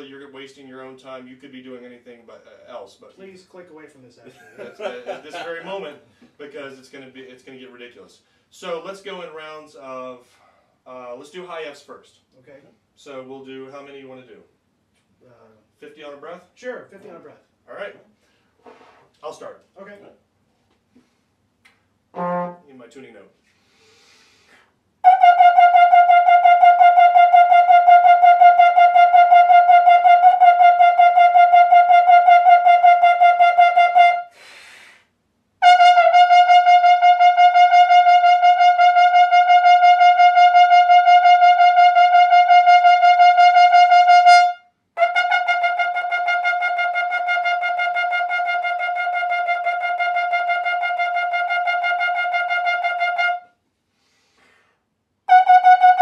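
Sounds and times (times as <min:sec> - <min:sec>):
trombone rapidly tonguing a note: 0:55.3 - 0:56.0.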